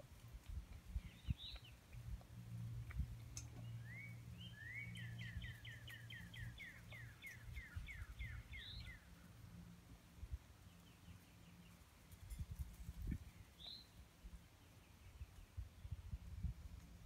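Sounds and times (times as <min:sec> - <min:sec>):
steady low hum: 0:00.0 - 0:17.0
songbird whistling: 0:03.6 - 0:09.0.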